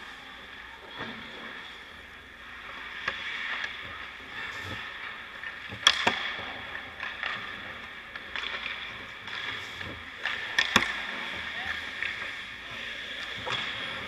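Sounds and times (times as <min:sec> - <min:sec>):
skate blades scraping ice: 0:02.4 - 0:14.0.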